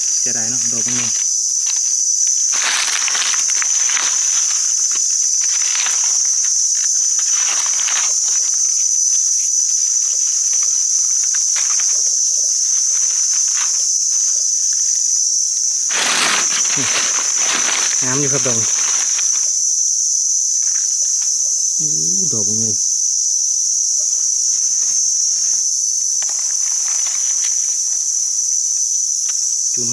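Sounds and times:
forest insects droning: 0.0s - 29.9s
footsteps rustling through undergrowth: 0.1s - 21.6s, 23.9s - 29.6s.

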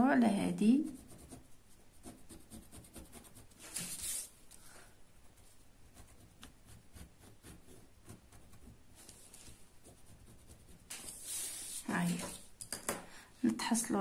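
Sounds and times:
ballpoint pen scratching paper: 0.9s - 4.3s, 5.4s - 12.4s.

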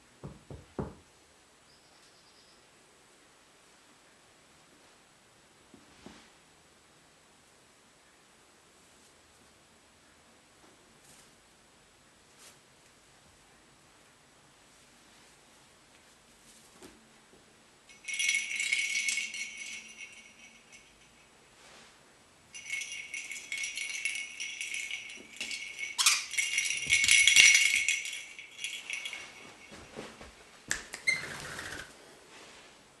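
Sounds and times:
ball toy bell jingling: 17.9s - 21.4s, 22.5s - 30.0s.

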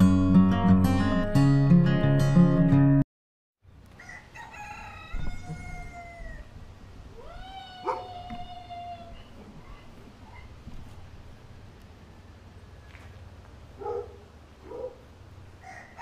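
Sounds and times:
strummed guitar music: 0.0s - 3.0s
rooster crowing: 4.0s - 6.6s, 7.2s - 9.3s, 15.6s - 16.0s.

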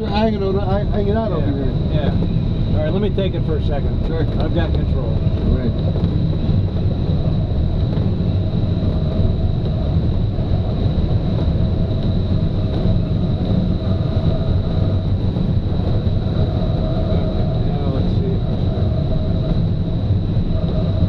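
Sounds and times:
airflow rushing around glider: 0.0s - 21.0s.

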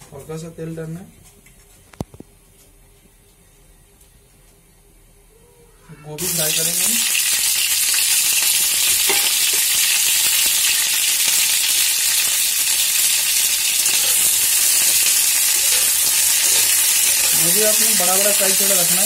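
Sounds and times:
oil popping: 6.2s - 18.6s
cauliflower sizzling in hot oil: 6.2s - 19.0s.

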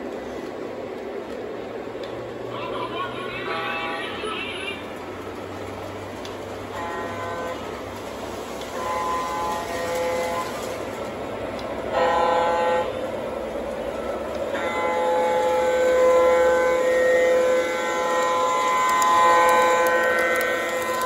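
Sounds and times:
model train rumbling on track: 0.0s - 21.0s
model train horn blasts: 6.7s - 7.9s, 8.6s - 11.0s, 11.9s - 13.2s, 13.8s - 21.0s.

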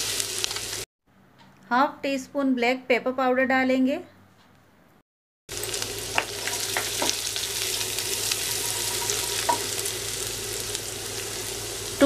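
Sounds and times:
oil sizzling in a pan: 0.0s - 0.9s, 5.5s - 12.0s
spatula stirring and tapping: 6.1s - 7.3s, 8.6s - 9.8s.

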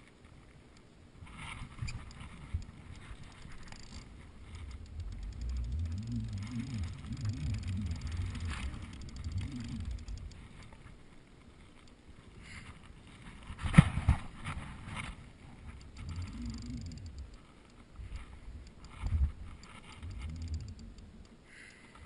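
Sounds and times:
handling rumble: 1.6s - 12.9s
fishing reel ticking: 1.8s - 10.8s, 15.7s - 17.9s, 18.6s - 22.0s.

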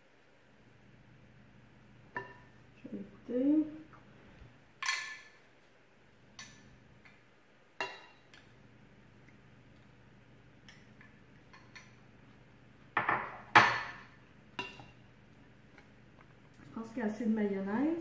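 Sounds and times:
utensil clinking on bowls: 7.8s - 8.6s, 11.0s - 12.1s, 13.0s - 15.0s.

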